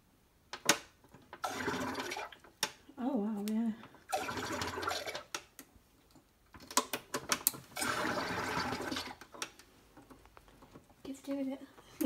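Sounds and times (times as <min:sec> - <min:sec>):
gas rushing and bubbling into water: 0:01.4 - 0:02.4, 0:07.8 - 0:09.2.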